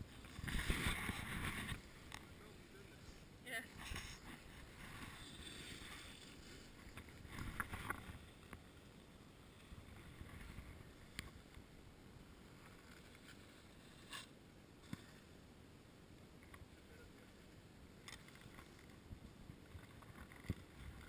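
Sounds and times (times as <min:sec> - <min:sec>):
wind rumble on microphone: 0:00.0 - 0:02.3.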